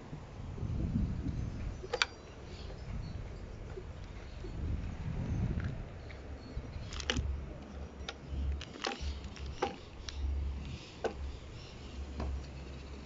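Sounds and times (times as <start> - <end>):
pouch clicks and rustles: 6.8 - 7.3, 8.5 - 10.8.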